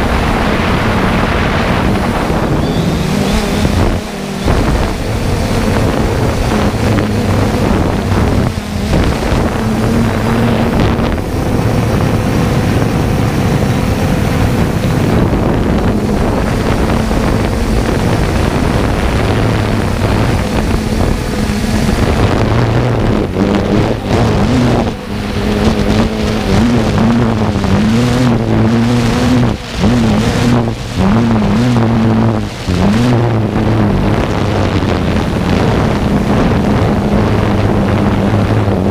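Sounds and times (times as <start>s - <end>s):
drone propellers humming: 0.0s - 38.9s
wind buffeting microphone: 0.0s - 38.9s.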